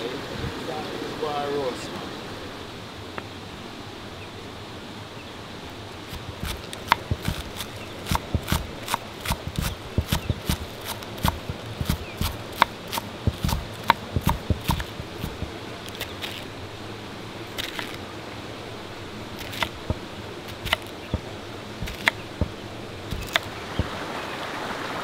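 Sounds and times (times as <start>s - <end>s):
sharp knocks: 6.1s - 15.5s, 19.5s - 24.0s.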